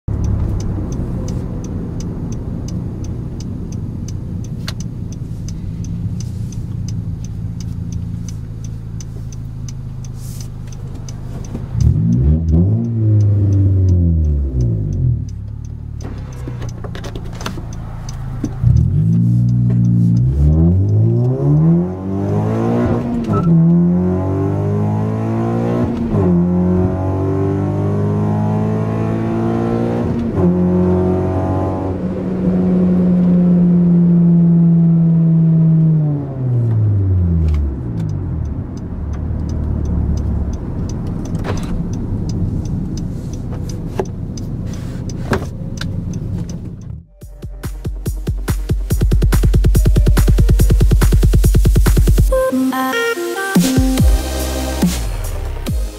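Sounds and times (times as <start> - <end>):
car engine accelerating: 0.0 - 52.4, 53.3 - 55.9.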